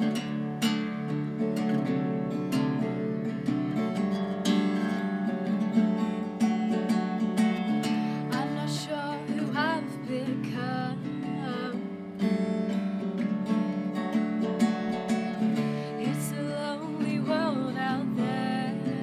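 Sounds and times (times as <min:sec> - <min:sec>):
acoustic guitar strumming chords: 0:00.0 - 0:19.0
woman singing: 0:07.6 - 0:12.5, 0:15.1 - 0:19.0.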